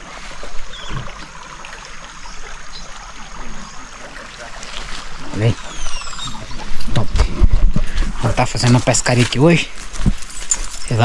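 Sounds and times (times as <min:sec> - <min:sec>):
river water flowing: 0:00.0 - 0:11.0
faint chirps: 0:01.7 - 0:07.2.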